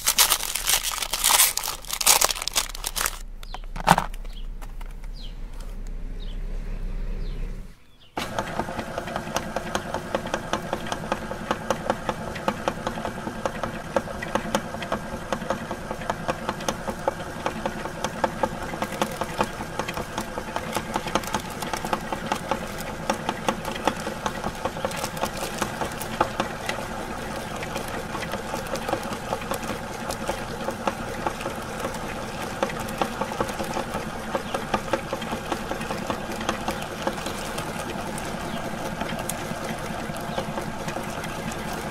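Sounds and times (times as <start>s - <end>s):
grinder gears rattling: 0.0s - 5.7s, 17.0s - 41.9s
meat grinder motor hum: 0.0s - 6.6s, 8.2s - 41.9s.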